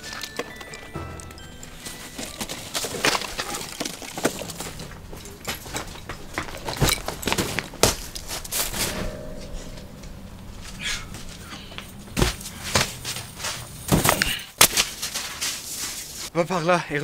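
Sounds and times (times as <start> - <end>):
footsteps crunching in snow: 14.8 - 16.3.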